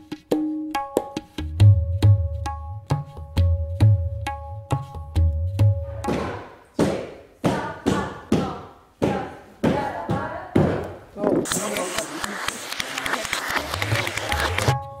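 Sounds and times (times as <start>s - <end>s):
hand drum strokes: 11.4s - 15.0s.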